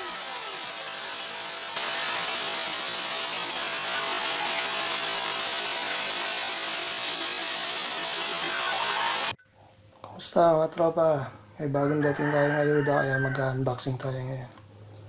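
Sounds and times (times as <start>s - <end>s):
vacuum cleaner motor whooshing: 0.0s - 9.4s.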